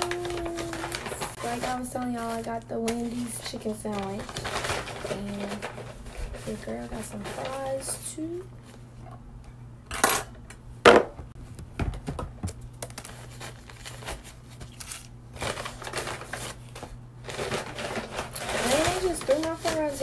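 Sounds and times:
paper bag rustling and crinkling: 0:00.0 - 0:08.8, 0:12.9 - 0:20.0.

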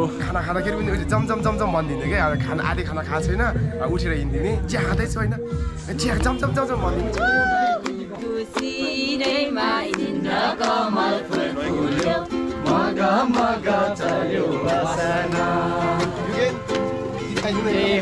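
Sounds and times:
strummed ukulele: 0:06.1 - 0:18.0
people singing together: 0:06.2 - 0:18.0.

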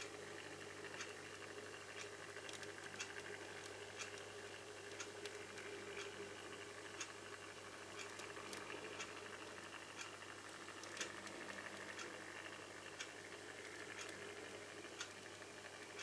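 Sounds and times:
turntable motor hum: 0:00.0 - 0:16.0
light irregular clicks: 0:00.8 - 0:16.0.

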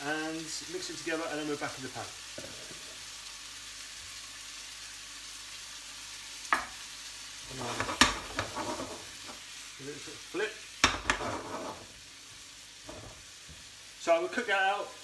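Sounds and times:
vegetables sizzling in oil: 0:00.0 - 0:15.0
frying pan knocks and scrapes: 0:07.6 - 0:09.4, 0:10.8 - 0:11.9, 0:12.8 - 0:13.2.

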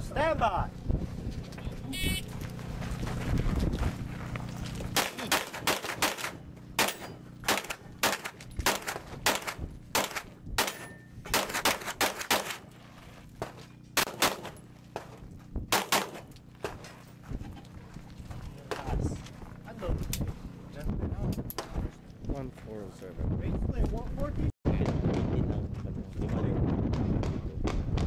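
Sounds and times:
rapid handgun shots: 0:05.0 - 0:12.7, 0:14.0 - 0:14.6, 0:15.7 - 0:16.3.

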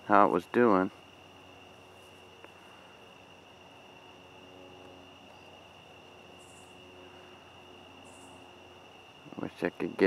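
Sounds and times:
insect chorus: 0:00.0 - 0:10.0.

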